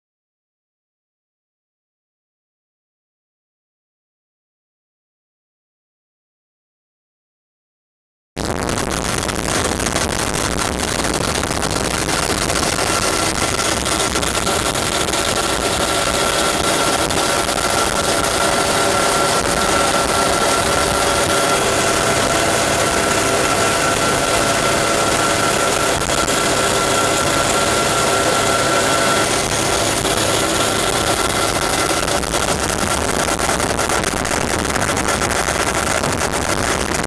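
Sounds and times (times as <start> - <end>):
helicopter engine and rotor: 9.1 - 37.0.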